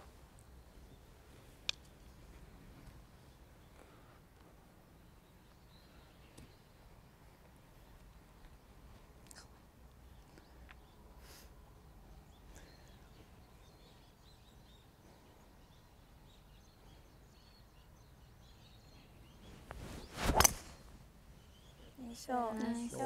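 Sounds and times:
faint birds chirping: 0.0 - 23.0
golf club whoosh: 19.7 - 20.9
golf club striking ball: 20.2 - 20.8.

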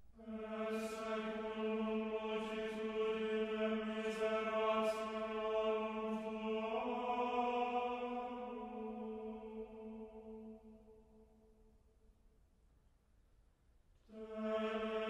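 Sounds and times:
low chant-like drone: 0.2 - 11.0.

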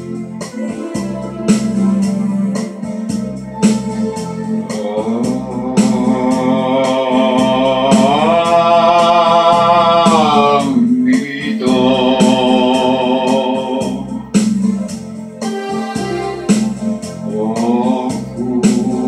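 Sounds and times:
electronic organ backing track: 0.0 - 19.0
man singing held notes: 4.7 - 14.0.

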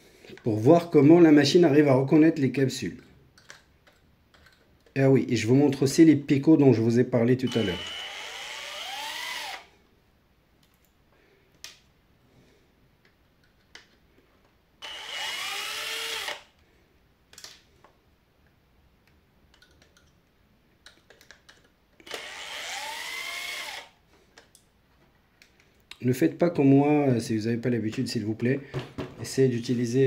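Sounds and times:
drill motor whine: 7.5 - 9.7, 14.8 - 16.4, 22.0 - 23.9.

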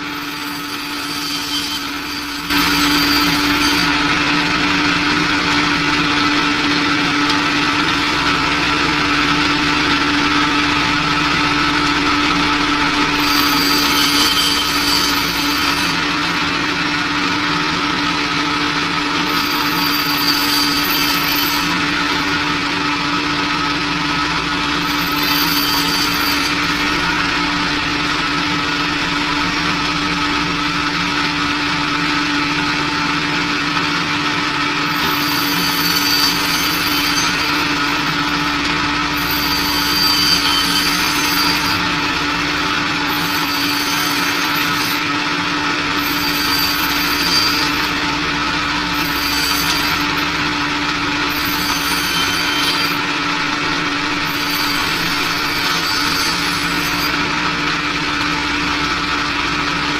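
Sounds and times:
band saw motor hum: 0.0 - 59.9
saw blade cutting hiss: 0.2 - 4.0, 13.0 - 16.4, 34.9 - 45.0, 48.9 - 50.4, 51.3 - 53.2.

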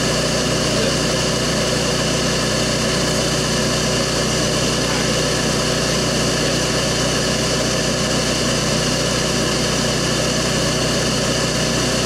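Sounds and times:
vacuum motor droning: 0.0 - 12.0.

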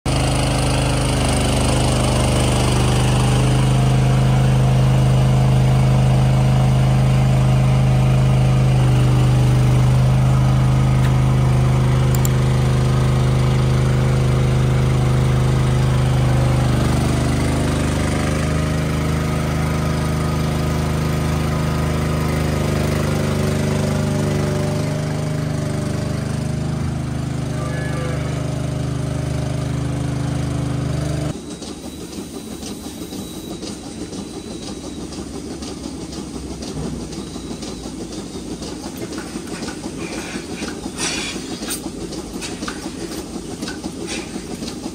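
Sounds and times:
engine humming: 0.1 - 31.4.

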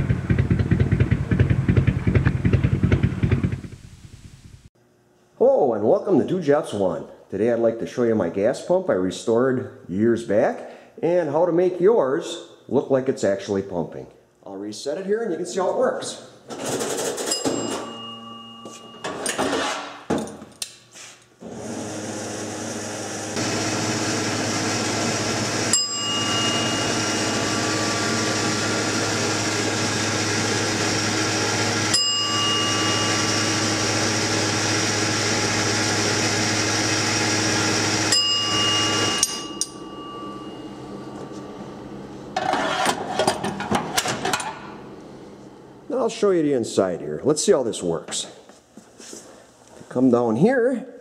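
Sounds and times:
bell dinging: 17.3 - 19.2, 25.7 - 27.8, 31.9 - 34.0, 38.1 - 41.9
steady motor whir: 21.5 - 39.8.

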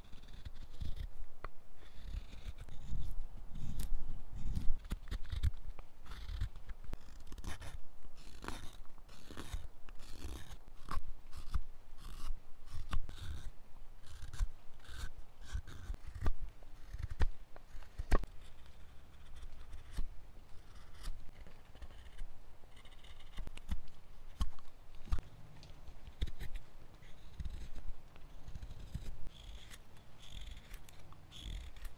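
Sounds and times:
knife shaving wood: 0.0 - 31.9.

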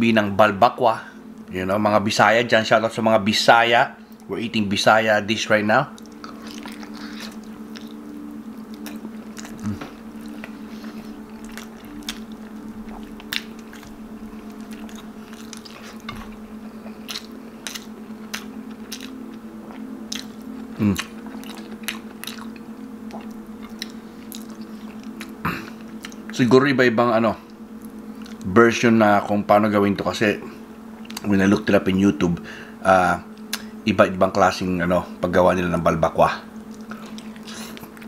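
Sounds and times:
steady low hum: 0.0 - 38.0
wet chewing and smacking: 5.9 - 26.4, 27.5 - 28.5, 30.9 - 31.3, 36.6 - 38.0.

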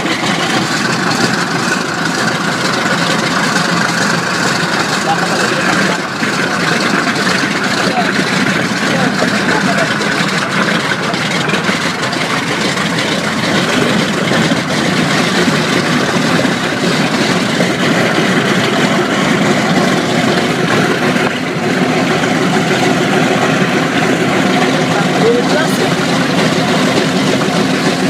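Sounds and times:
radial piston engines idling: 0.0 - 28.0.

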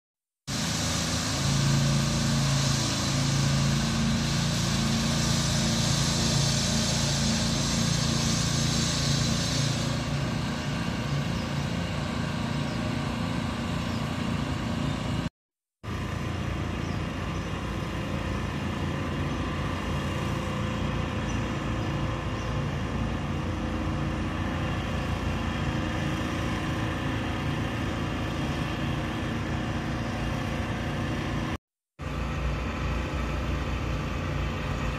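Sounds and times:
high hiss: 0.5 - 12.5
small engine droning: 0.5 - 34.9.

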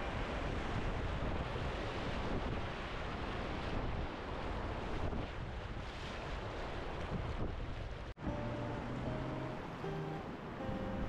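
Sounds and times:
wind buffeting microphone: 0.0 - 11.0
rushing river whitewater: 8.2 - 11.0.

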